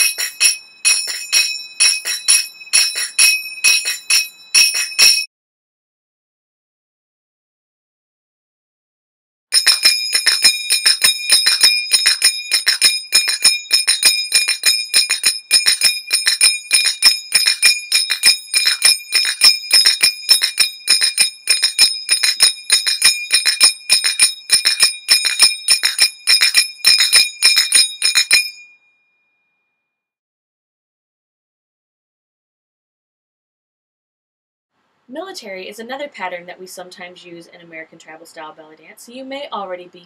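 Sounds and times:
finger cymbals ringing: 0:00.0 - 0:05.3, 0:09.6 - 0:28.8.

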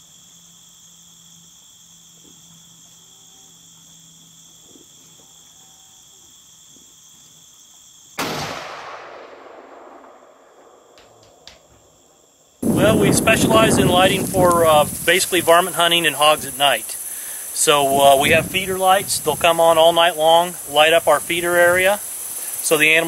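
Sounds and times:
night insects chorus: 0:00.0 - 0:23.0
rifle shot echoing: 0:08.2 - 0:11.8.

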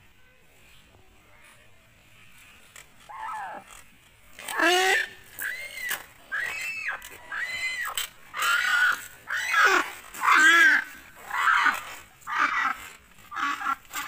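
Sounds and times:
ducks calling harshly: 0:04.4 - 0:14.0.

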